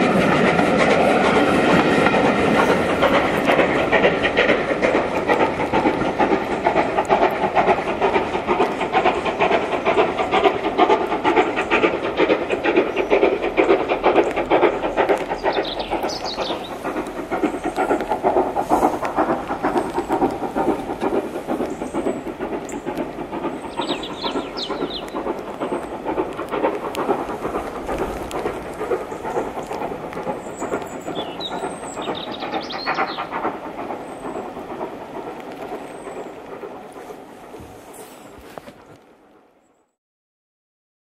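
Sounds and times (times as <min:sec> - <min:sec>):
steam locomotive exhaust beats: 0:00.0 - 0:39.7
bird chirping: 0:15.2 - 0:16.9, 0:23.6 - 0:25.9, 0:30.4 - 0:33.3.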